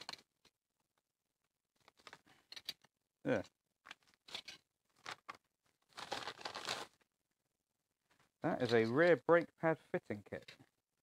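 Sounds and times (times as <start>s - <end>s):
plastic bag crinkling: 3.9s - 7.0s.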